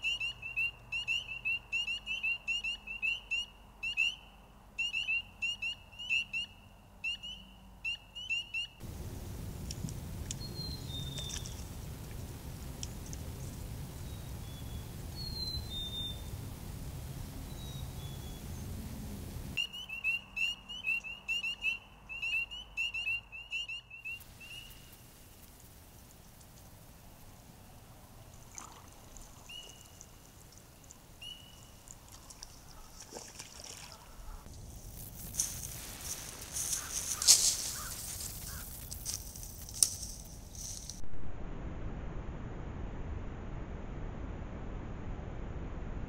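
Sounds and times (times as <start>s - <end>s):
low rushing noise: 8.8s - 19.6s, 41.0s - 46.0s
frogs peeping: 19.6s - 34.5s, 36.3s - 39.1s.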